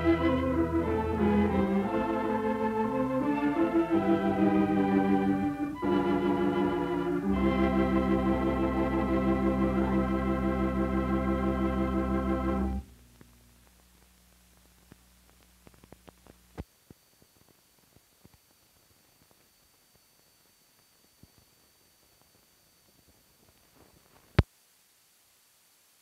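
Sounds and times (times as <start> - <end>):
title music with sustained chords: 0.0 - 12.8
faint film hiss with crackles: 0.0 - 26.0.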